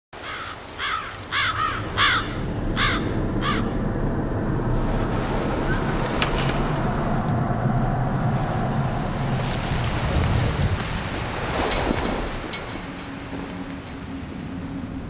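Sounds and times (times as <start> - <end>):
crows cawing: 0.2 - 3.8
rushing wind: 0.2 - 15.0.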